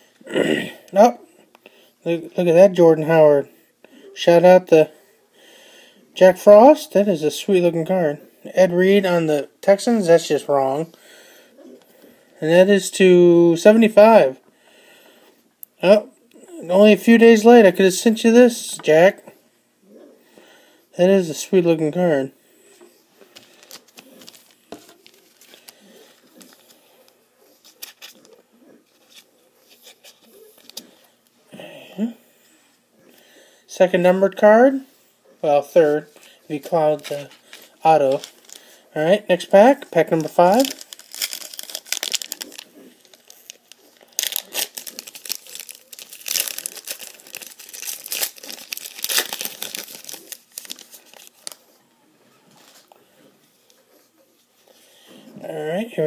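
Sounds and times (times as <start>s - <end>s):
trading cards rustling: 23.2s - 31.0s, 36.1s - 51.8s
foil wrapper crinkling and tearing: 23.3s - 26.8s, 27.6s - 30.8s, 36.6s - 38.8s, 39.4s - 51.7s.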